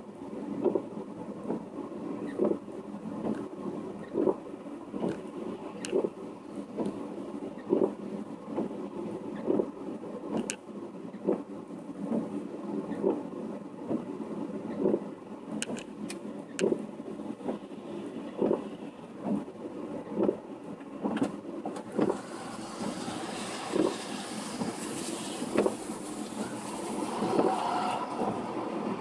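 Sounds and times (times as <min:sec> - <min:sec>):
regular dull thump: 0:00.6 - 0:01.7, 0:07.7 - 0:08.8, 0:09.4 - 0:09.7, 0:11.2 - 0:11.5, 0:14.8 - 0:17.6, 0:18.4 - 0:19.5, 0:20.1 - 0:22.2
car tyres hissing on wet road: 0:21.0 - 0:29.0
tractor passing: 0:21.8 - 0:29.0.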